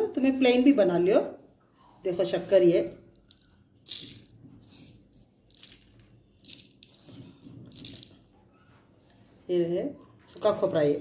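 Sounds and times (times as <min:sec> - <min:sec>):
sugar grains falling: 0:02.8 - 0:08.2.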